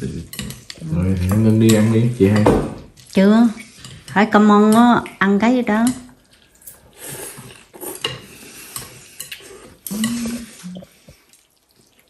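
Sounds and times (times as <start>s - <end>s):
utensils clinking on ceramic bowls: 0.2s - 2.5s, 3.5s - 10.6s.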